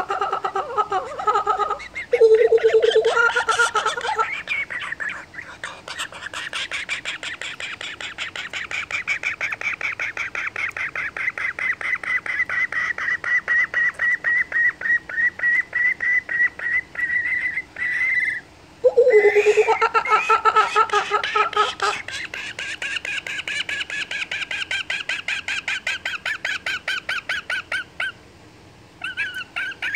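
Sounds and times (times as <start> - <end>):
kookaburra chick high chirps: 0.0 - 5.1, 17.1 - 28.2
lower wavering call: 2.1 - 3.3, 18.8 - 19.8.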